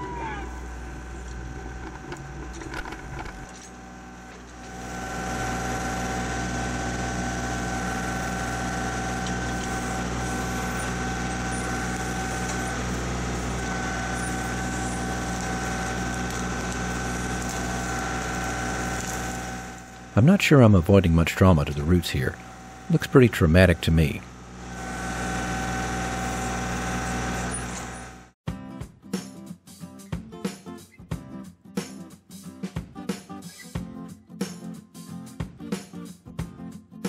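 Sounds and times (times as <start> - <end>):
steady high whine: 0.0 - 28.4
tractor diesel engine running: 0.5 - 28.4.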